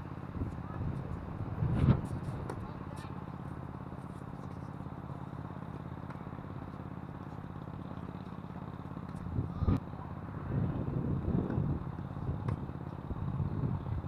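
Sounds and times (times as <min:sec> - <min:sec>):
wind buffeting a microphone: 0:00.2 - 0:02.9, 0:09.2 - 0:09.8, 0:10.4 - 0:14.0.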